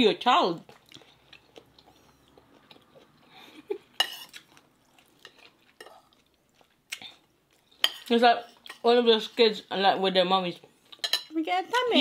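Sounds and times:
cutlery clinking on plates: 4.0 - 4.4, 11.0 - 11.3.

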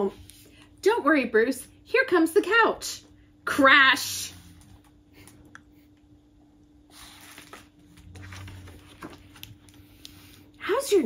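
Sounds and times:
faint steady hum: 0.0 - 11.0
book pages rustling: 7.0 - 10.3.

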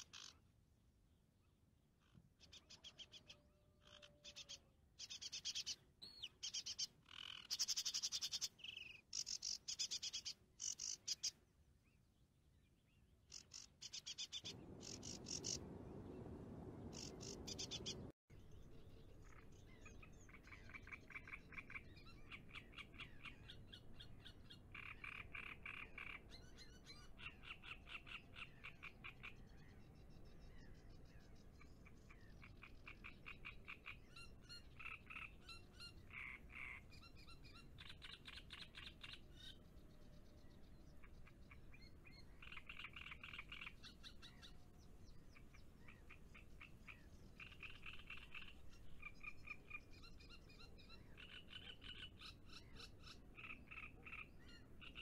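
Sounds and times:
birds chirping: 12.8 - 55.0
low rushing noise: 14.5 - 18.1.

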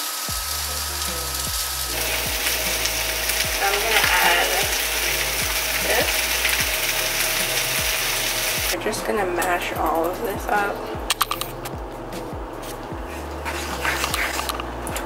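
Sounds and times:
food sizzling in frying pan: 0.0 - 8.8
background music beat: 0.0 - 15.0
wooden spoon stirring: 12.6 - 15.0.

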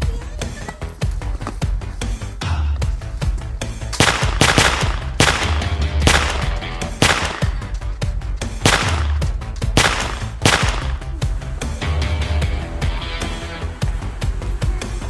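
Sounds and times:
background music with deep bass: 0.0 - 15.0
echoing gunshots: 4.0 - 7.8, 8.6 - 11.2.

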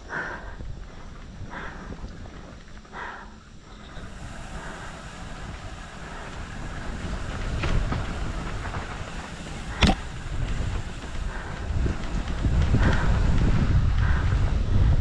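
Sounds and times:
bike rumbling and rattling: 0.0 - 15.0
wind rushing on microphone: 0.0 - 15.0.

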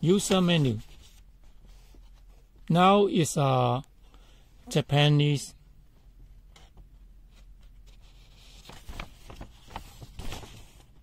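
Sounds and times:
paper rustling: 0.0 - 2.4, 7.3 - 11.0.

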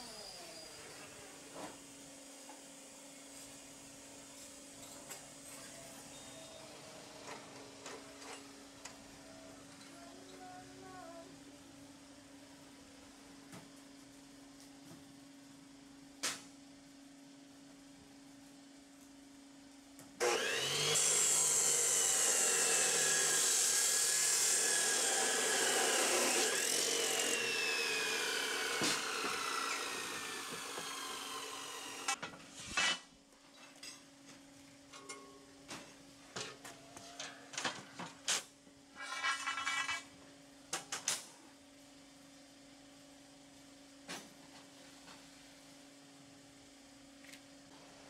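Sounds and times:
cut-off saw grinding steel: 20.2 - 33.0.

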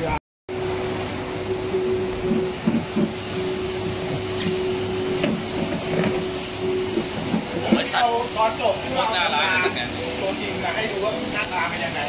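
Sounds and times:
steady machine hum: 0.0 - 12.0
steady tone: 0.5 - 12.0.

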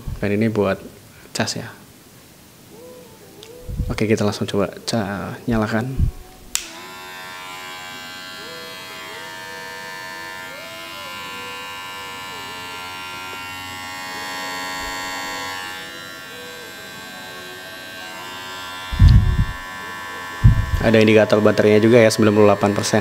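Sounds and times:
hair clipper humming: 5.5 - 23.0.

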